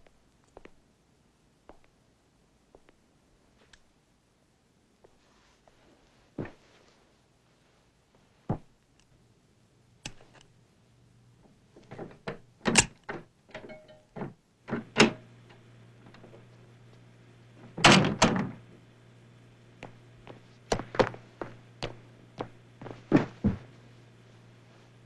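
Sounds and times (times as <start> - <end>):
faint low hum: 0.0 - 25.0
foley knocks and thuds: 20.7 - 23.8.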